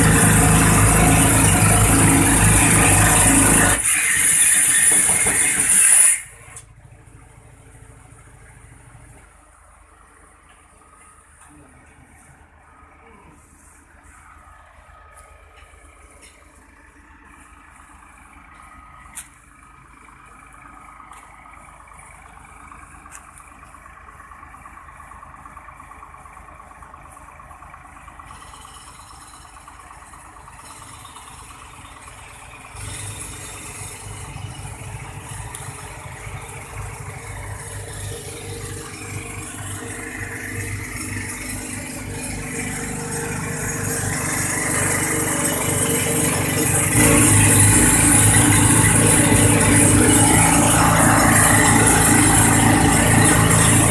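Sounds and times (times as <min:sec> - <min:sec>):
water pump motor running: 0:00.0 - 0:08.4, 0:20.2 - 0:53.9.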